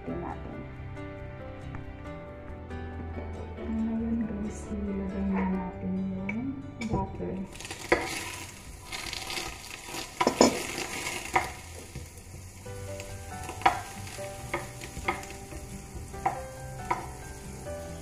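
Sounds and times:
butter sizzling in a pan: 7.5s - 18.0s
spoon scraping a pan: 7.6s - 12.1s.

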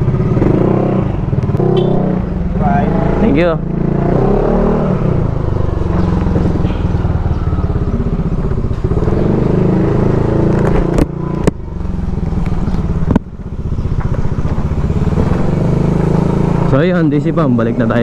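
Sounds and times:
scooter engine running: 0.0s - 18.0s.

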